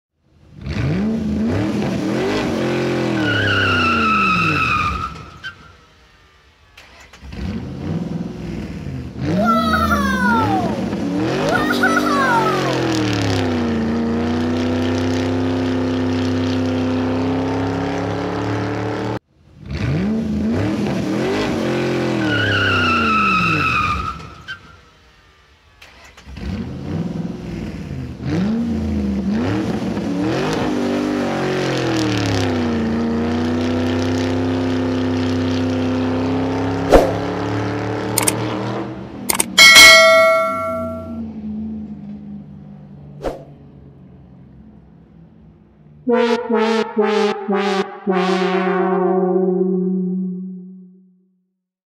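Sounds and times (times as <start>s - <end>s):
car engine revving with squealing: 0.5s - 6.0s, 6.8s - 24.9s, 25.9s - 41.6s.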